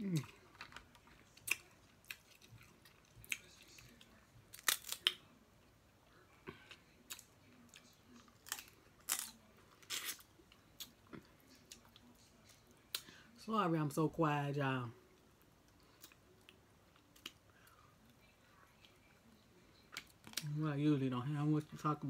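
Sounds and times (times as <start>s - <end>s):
crab shells cracking: 4.5s - 5.3s.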